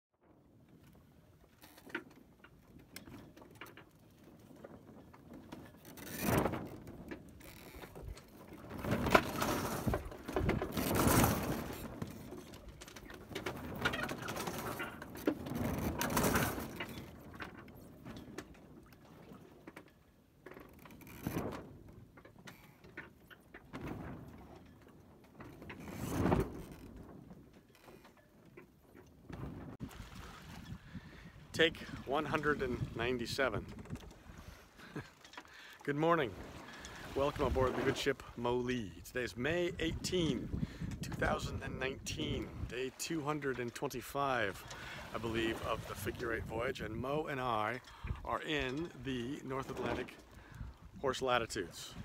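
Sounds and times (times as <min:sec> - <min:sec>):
water swishing along a hull: 0:00.2 - 0:52.0.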